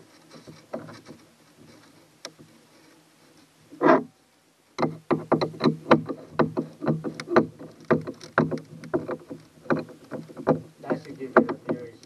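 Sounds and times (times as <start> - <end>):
hand tools knocking on boat hull: 5.1 - 11.9.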